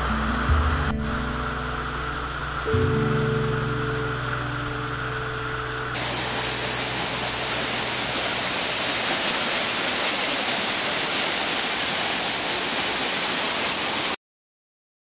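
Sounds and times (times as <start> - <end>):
waterfall pouring over rocks: 6.0 - 14.2.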